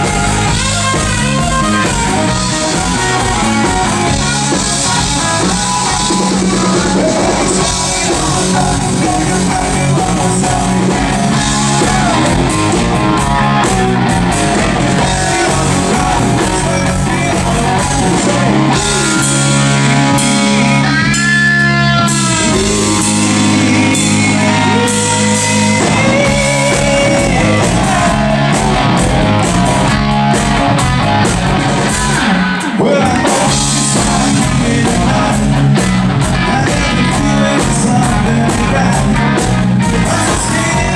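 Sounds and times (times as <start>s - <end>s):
drum kit: 0.0s - 40.9s
electric bass: 0.0s - 40.9s
electric guitar: 0.0s - 40.9s
man singing into microphone: 4.2s - 12.5s, 15.0s - 28.6s, 32.6s - 35.8s, 36.4s - 40.9s.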